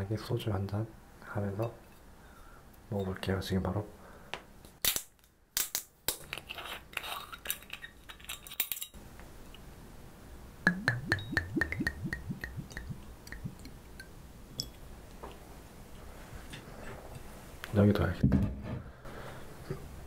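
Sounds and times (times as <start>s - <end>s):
liquid glugging into glass: 10.7s - 13.8s.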